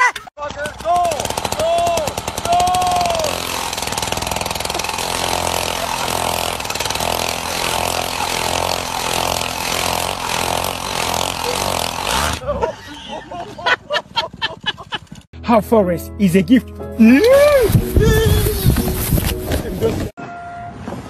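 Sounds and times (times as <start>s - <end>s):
two-stroke ice auger engine: 0.4s - 12.5s
person calling out: 17.0s - 18.8s.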